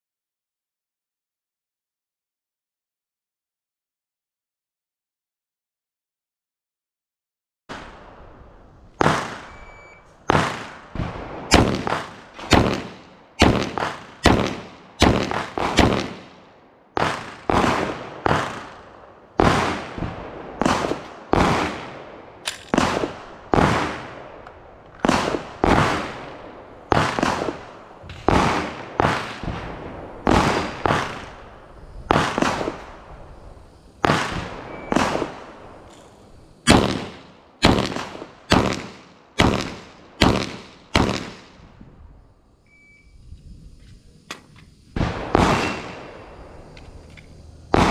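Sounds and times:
handgun shots: 11.5 - 16.3, 22.4 - 23.2, 36.7 - 41.4.

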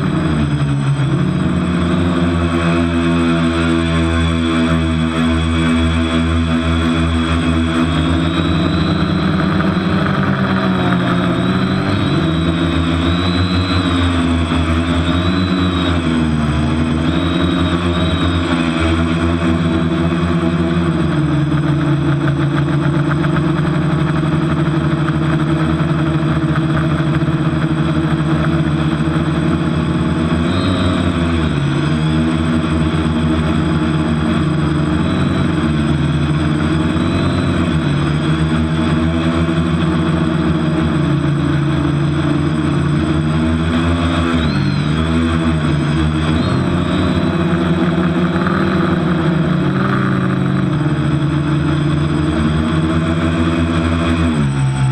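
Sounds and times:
quadcopter propellers buzzing: 0.0 - 54.9.

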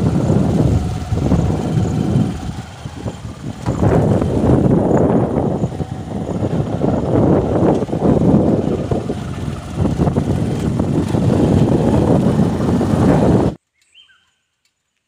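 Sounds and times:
motorcycle engine running: 0.0 - 13.6
wind buffeting microphone: 0.0 - 13.6.

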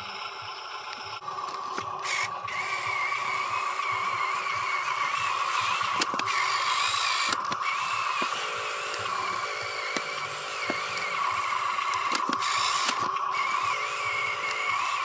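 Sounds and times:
toy truck motor whining: 0.0 - 15.0
sharp clicks: 5.8 - 13.4.

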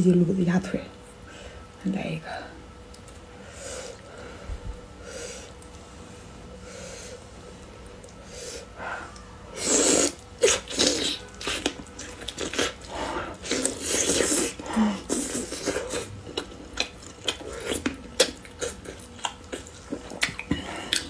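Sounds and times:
wet chewing and lip smacks: 10.0 - 21.0.

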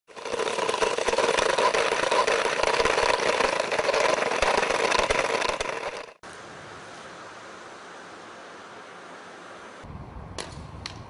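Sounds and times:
small motor buzzing: 0.1 - 6.2.

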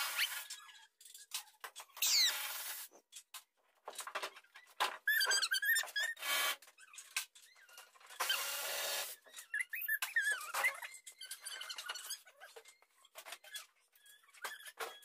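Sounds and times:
squeaky whistling chirps: 9.2 - 14.8.

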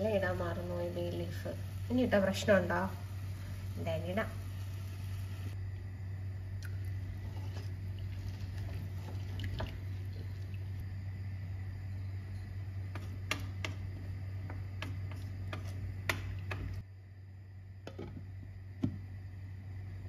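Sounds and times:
steady low hum: 0.0 - 20.0
spoon stirring rice in pot: 12.3 - 16.7.

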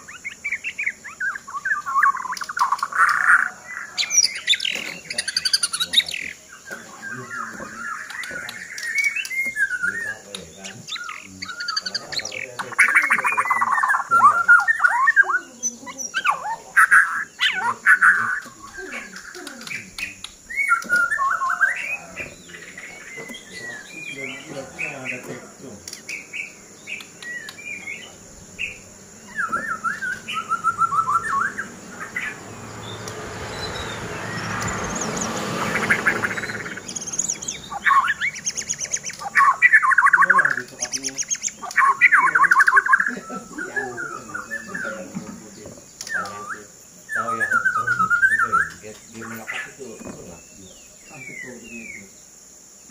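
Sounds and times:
bird singing whistled phrases: 0.0 - 24.4, 26.1 - 45.0, 46.0 - 48.8
rushing noise: 29.8 - 38.4.

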